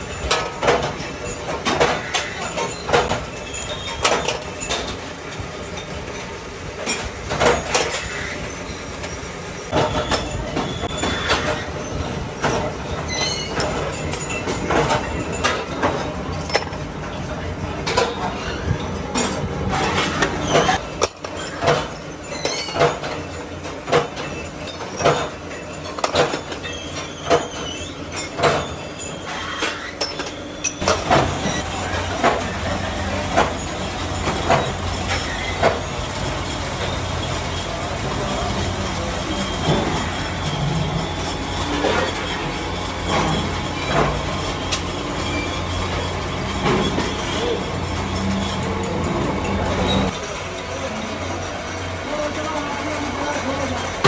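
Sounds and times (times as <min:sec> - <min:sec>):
metallic clanks and knocks: 0:17.8 - 0:32.5
machine hum: 0:30.3 - 0:54.0.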